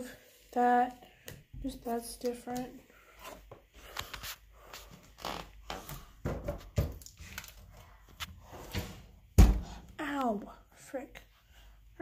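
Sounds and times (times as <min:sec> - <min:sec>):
rustling and clicks of handling: 0:02.1 - 0:05.0
dull thumps: 0:09.3 - 0:09.8.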